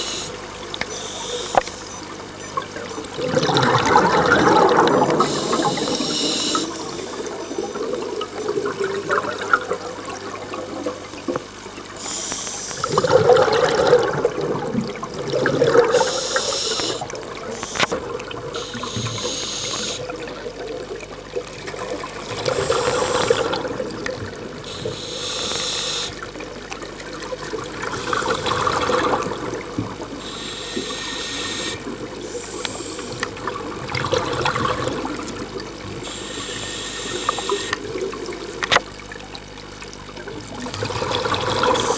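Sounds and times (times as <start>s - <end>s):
exhaled air bubbling: 0.0s - 41.9s
regulator inhalation hiss: 5.3s - 6.8s, 15.9s - 17.0s, 18.6s - 20.1s, 22.5s - 23.6s, 24.7s - 26.2s, 30.2s - 33.2s, 36.0s - 37.8s.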